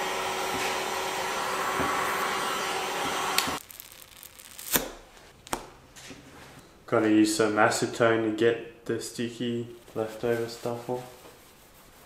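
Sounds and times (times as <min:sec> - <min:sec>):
hot-air blower running: 0:00.0 - 0:03.6.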